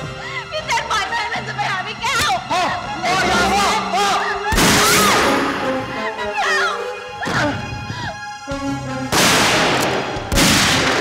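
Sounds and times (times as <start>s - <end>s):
dramatic background music: 0.0s - 11.0s
loud pistol shot: 9.1s - 11.0s.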